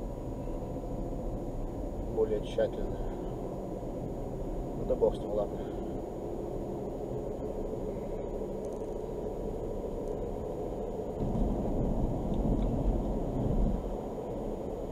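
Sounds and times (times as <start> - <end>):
car road and engine noise: 0.0 - 14.9.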